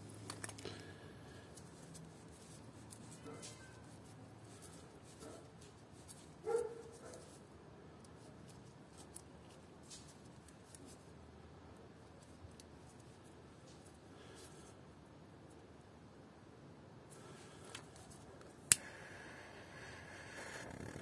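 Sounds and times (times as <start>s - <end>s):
small parts clicking and rustling: 0.2s - 11.1s, 12.0s - 14.6s.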